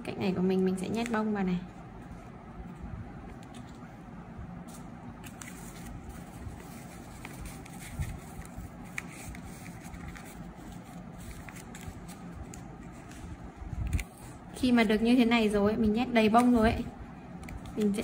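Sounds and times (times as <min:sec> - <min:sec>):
low background hum: 0:00.0 - 0:18.0
adhesive tape crinkling: 0:04.6 - 0:14.4.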